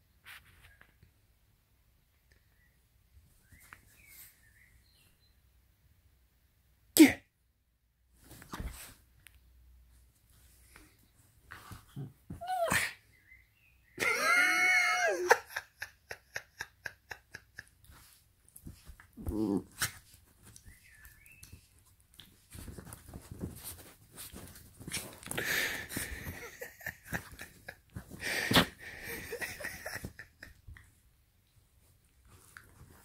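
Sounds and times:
scuffling on bedding: 8.2 - 9.1, 17.9 - 28.8
dog crying: 12.4 - 12.9
dog growling: 19.2 - 19.8.

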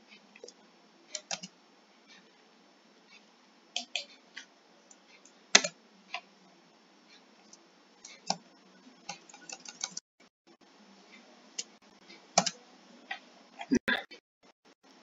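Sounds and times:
computer keys clicking: 1.1 - 1.5, 9.0 - 10.0, 12.4 - 12.6.

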